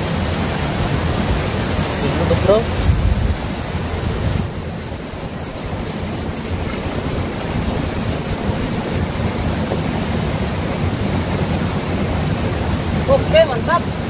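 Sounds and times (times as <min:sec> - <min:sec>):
fast-flowing river rushing: 0:00.0 - 0:14.0
wind buffeting microphone: 0:00.7 - 0:14.0.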